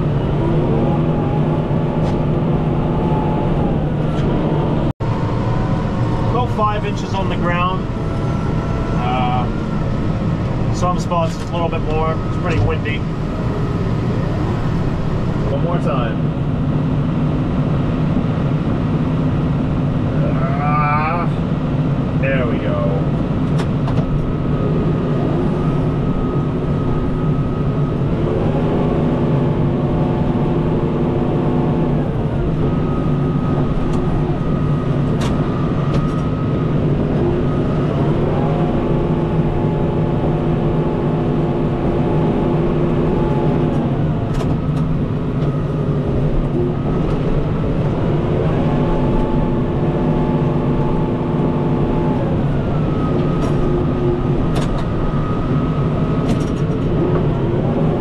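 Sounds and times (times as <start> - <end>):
tractor diesel engine revving: 0.0 - 19.6.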